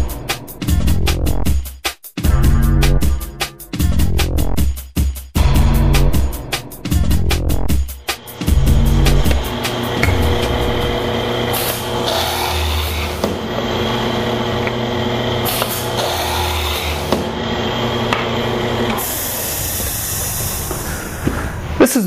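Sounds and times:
electric motor humming: 8.0 - 19.9
drill stroke: 8.0 - 20.9
air exhaust hiss: 18.9 - 21.8.

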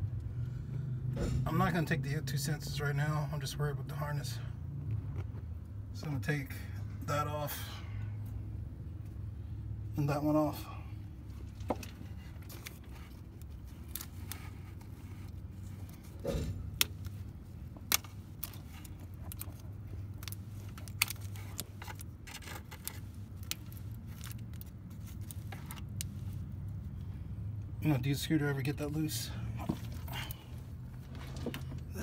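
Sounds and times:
plastic connectors clicking and rattling: 17.8 - 26.1.

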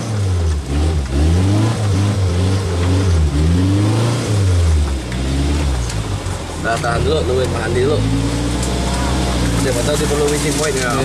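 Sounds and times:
off-road vehicle engine revving: 0.0 - 11.0.

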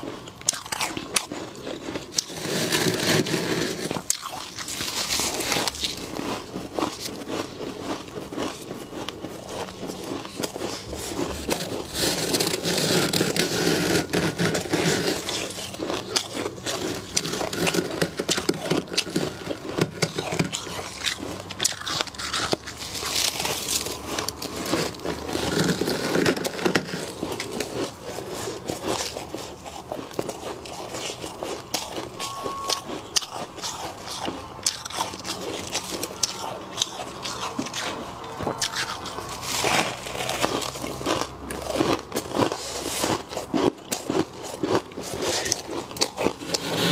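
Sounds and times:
frost crunching and scraping: 0.0 - 46.9.

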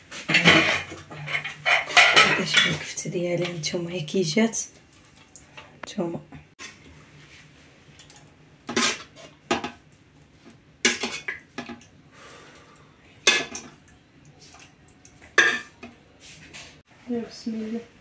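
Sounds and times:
metal spoon scraping a pot: 0.2 - 3.0, 8.7 - 9.7.

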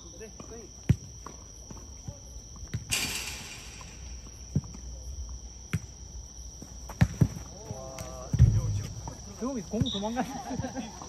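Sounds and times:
crickets chirring: 0.0 - 11.0
ball kicks and bounces: 0.4 - 4.9, 5.7 - 6.0, 6.9 - 10.0.

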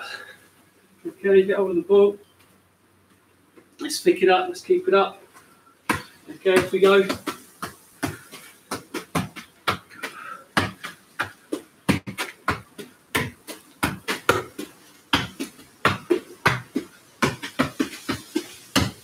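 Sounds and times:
football being kicked: 5.9 - 19.0.

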